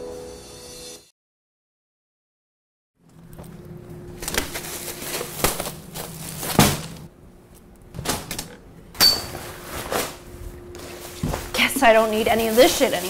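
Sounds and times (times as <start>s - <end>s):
rustling fabric: 4.2s - 7.1s, 9.4s - 13.0s.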